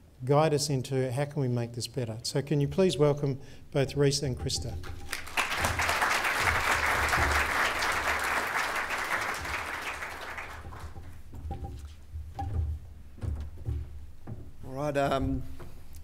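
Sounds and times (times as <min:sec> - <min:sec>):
audience applauding: 0:04.8 - 0:11.1
soft thumps: 0:10.6 - 0:16.0.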